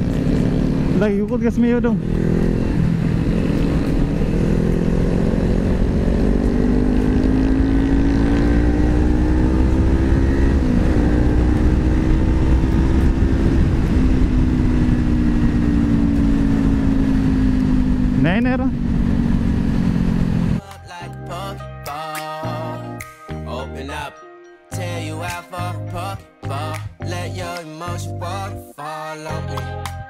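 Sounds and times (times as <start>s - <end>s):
motorcycle engine running: 0.0s - 20.6s
wind rumble on microphone: 0.0s - 20.6s.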